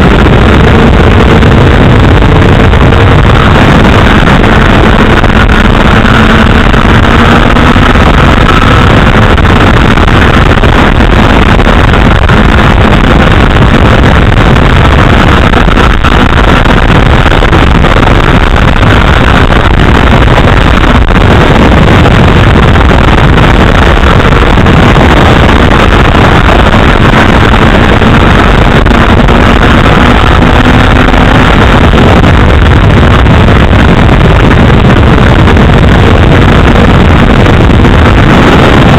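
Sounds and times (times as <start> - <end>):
wind buffeting microphone: 0.0 - 38.9.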